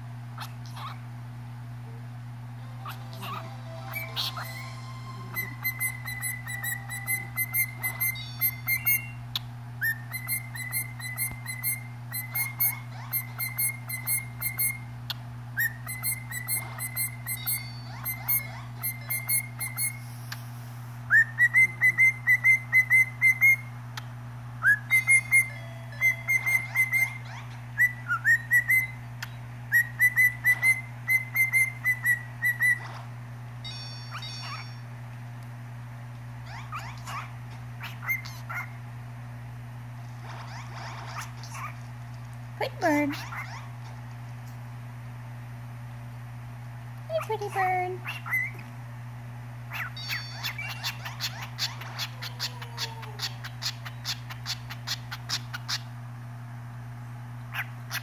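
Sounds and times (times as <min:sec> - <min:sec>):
cockatiel whistling: 0:02.8 - 0:14.9, 0:15.6 - 0:20.1, 0:21.1 - 0:23.7, 0:24.6 - 0:32.8, 0:34.1 - 0:34.8, 0:37.8 - 0:38.7, 0:48.1 - 0:48.6, 0:49.7 - 0:55.8.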